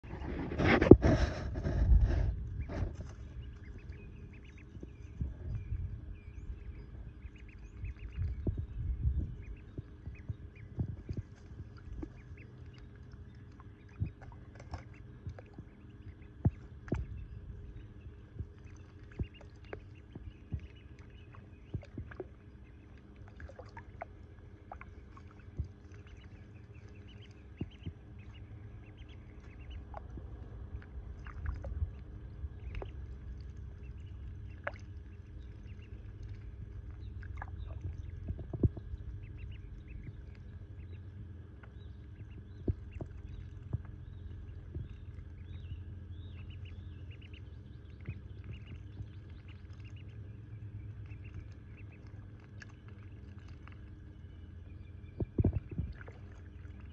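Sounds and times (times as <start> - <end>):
low steady rumble: 0.0 - 56.9
small water splashes: 9.5 - 17.3, 18.2 - 40.6, 41.6 - 54.4, 55.2 - 56.9.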